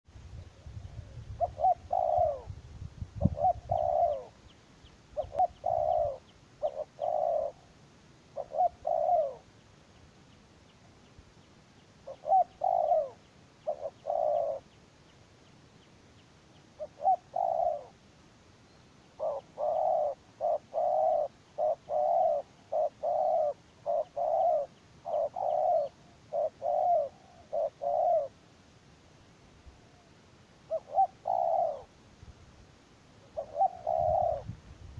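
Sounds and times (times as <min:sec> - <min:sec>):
dove cooing: 0:00.7 - 0:02.6, 0:03.2 - 0:04.4, 0:05.2 - 0:07.7, 0:08.3 - 0:09.5, 0:12.0 - 0:14.7, 0:16.7 - 0:18.0, 0:19.1 - 0:28.4, 0:29.7 - 0:32.0, 0:33.2 - 0:34.6.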